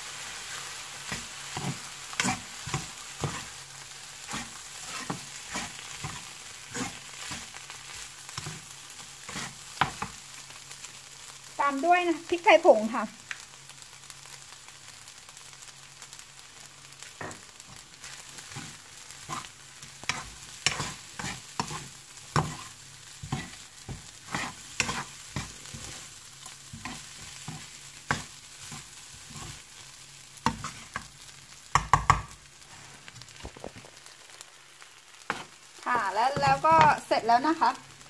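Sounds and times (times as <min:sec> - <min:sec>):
faint sizzle: 0:00.0 - 0:38.0
metal spatula scraping wok: 0:01.1 - 0:03.6, 0:04.2 - 0:07.6, 0:18.4 - 0:29.6, 0:30.5 - 0:31.1
spatula knocks on wok: 0:31.7 - 0:32.3.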